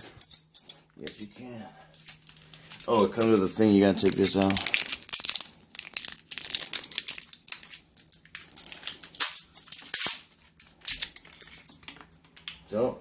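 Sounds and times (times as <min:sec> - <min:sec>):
plastic wrapping crinkling: 0:01.9 - 0:11.7.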